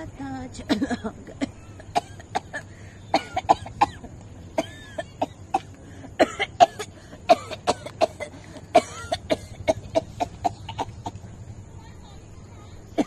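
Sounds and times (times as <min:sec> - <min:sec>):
woman coughing: 0:00.7 - 0:04.0, 0:04.6 - 0:11.2.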